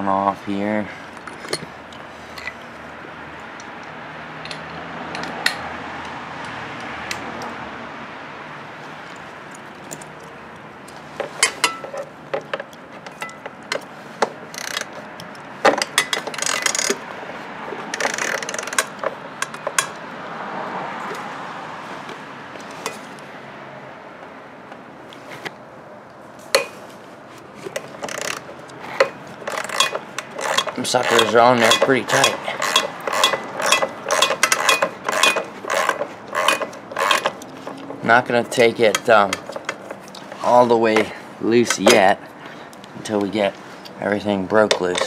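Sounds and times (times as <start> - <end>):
socket ratchet clicking: 14.5 - 17.0, 17.9 - 20.0, 27.7 - 38.0.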